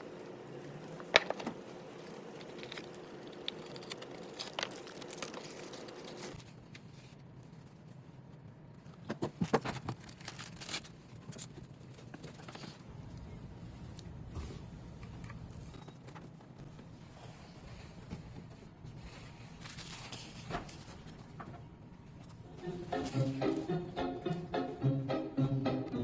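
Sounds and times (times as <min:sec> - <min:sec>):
steady hum: 0:00.0 - 0:08.9, 0:16.5 - 0:26.0
packaging rustling: 0:01.2 - 0:07.6.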